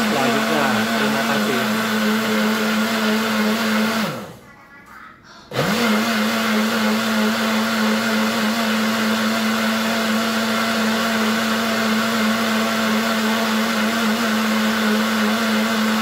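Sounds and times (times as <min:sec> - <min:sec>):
blender motor running: 0:00.0 - 0:04.4, 0:05.5 - 0:16.0.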